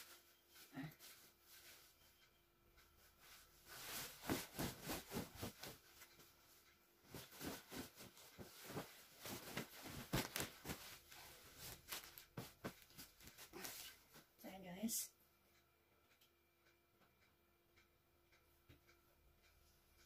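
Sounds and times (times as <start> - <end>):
bedding fabric rustling: 3.0 - 14.3.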